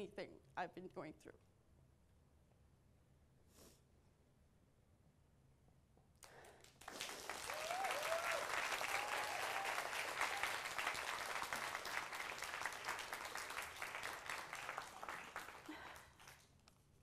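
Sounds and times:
audience applauding: 6.2 - 16.5.

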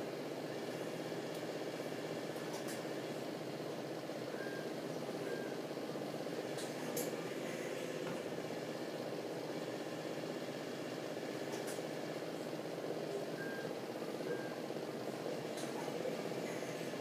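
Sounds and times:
faint short beep: 13.4 - 13.7.

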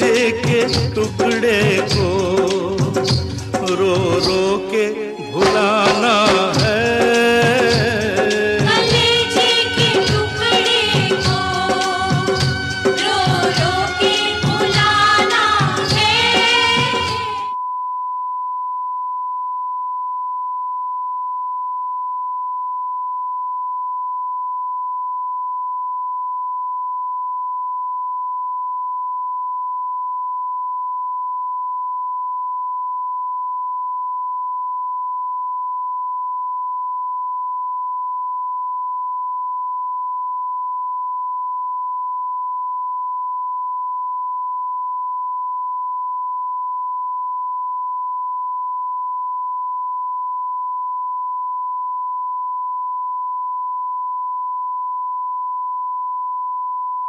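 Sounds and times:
steady test tone beep: 17.6 - 57.0.

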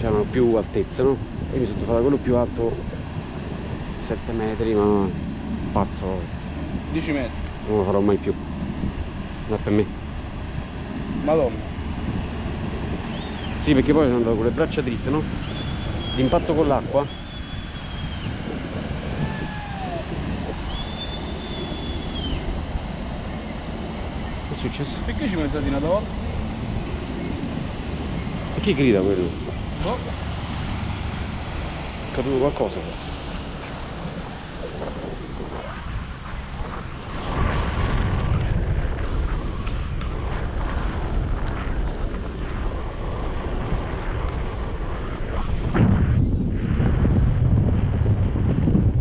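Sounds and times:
wind rushing over microphone: 0.0 - 49.0
distant high tones: 19.2 - 22.5.

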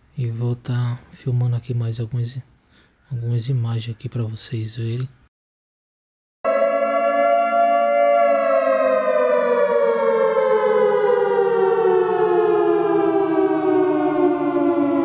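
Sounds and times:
siren-like wail sliding down: 6.4 - 15.0.

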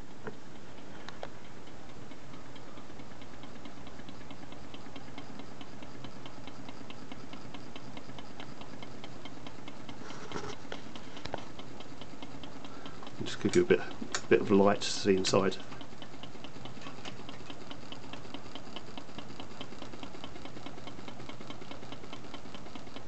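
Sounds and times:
fast crank clicking: 1.4 - 23.0.

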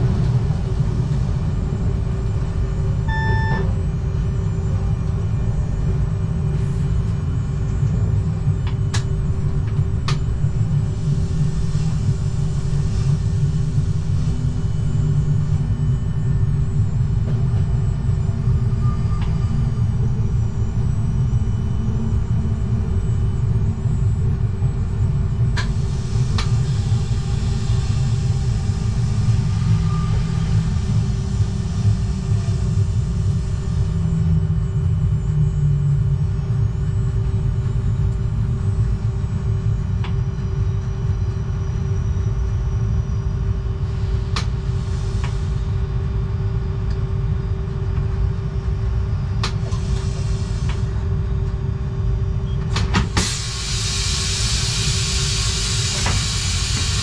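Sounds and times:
train wheels rumbling on rail: 0.0 - 42.5, 43.4 - 57.0
steady hum: 0.0 - 57.0.

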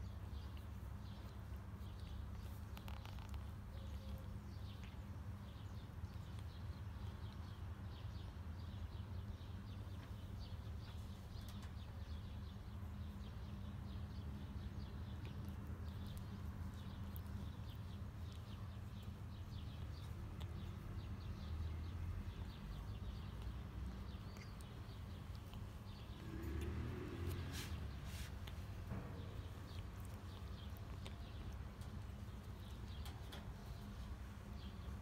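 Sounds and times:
tongue licking fur: 0.1 - 5.5, 22.3 - 34.1
cat purring: 23.5 - 33.8.

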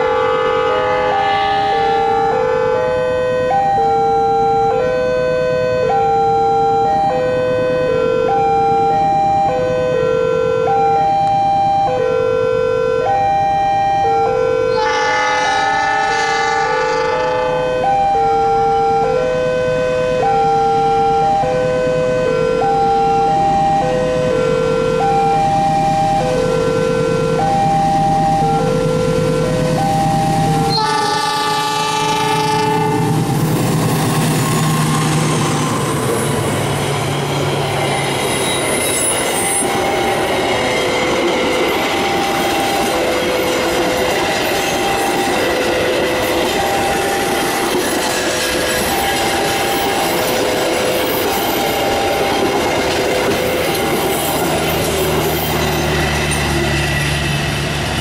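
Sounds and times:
train horn: 0.0 - 8.5, 9.5 - 10.9, 11.8 - 13.3, 14.0 - 36.3
level crossing alarm chime: 1.7 - 14.8, 17.7 - 30.8, 34.9 - 48.0.

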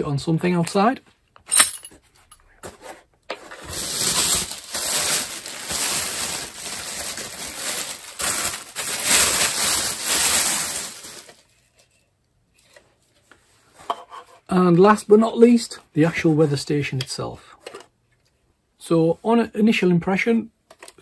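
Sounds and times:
packaging rustling and crinkling: 2.6 - 11.9.

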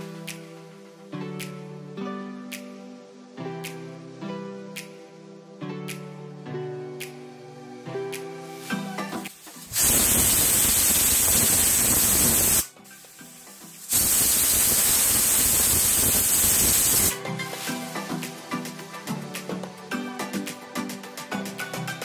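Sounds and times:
pressure cooker hissing whistle: 9.7 - 12.7, 13.9 - 17.1.

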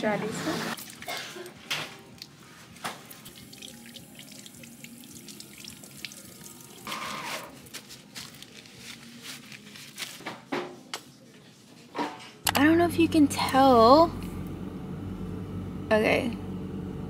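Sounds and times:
paper towels rustling: 7.3 - 10.5.

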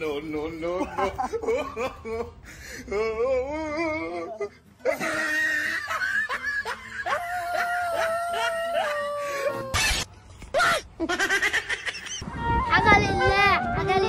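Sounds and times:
person crying out: 2.9 - 5.9, 7.0 - 10.9.

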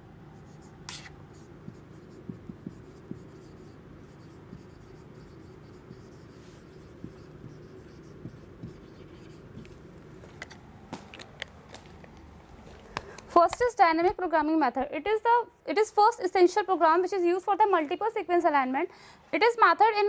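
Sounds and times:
low background hum: 0.0 - 20.0
marker writing on whiteboard: 0.4 - 11.6.

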